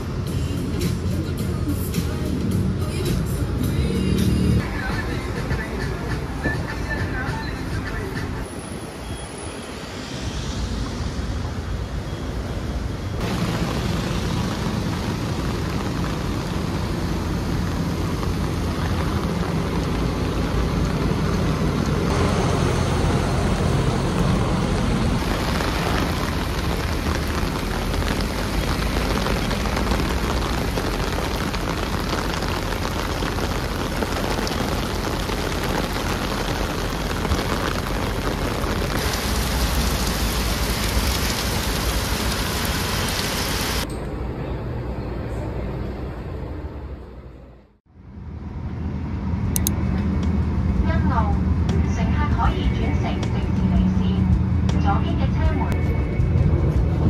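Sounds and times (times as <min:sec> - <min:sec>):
heavy rain on a street: 0:00.0 - 0:43.9.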